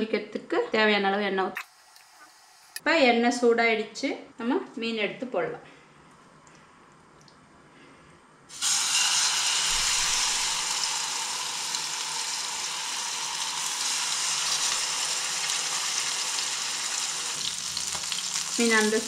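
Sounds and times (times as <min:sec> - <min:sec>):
fish sizzling in hot oil: 0:08.5 - 0:19.0.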